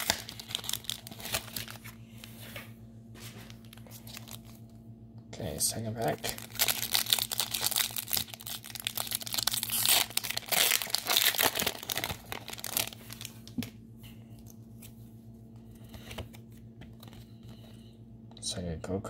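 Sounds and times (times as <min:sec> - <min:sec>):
foil wrapper crinkling and tearing: 0:00.0 - 0:02.0, 0:03.5 - 0:04.7, 0:05.6 - 0:13.6
handling cards: 0:00.0 - 0:04.8.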